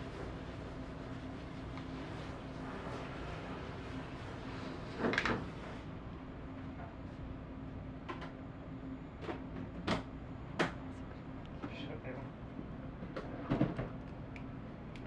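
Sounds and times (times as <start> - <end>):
hum of shop equipment: 0.0 - 15.0.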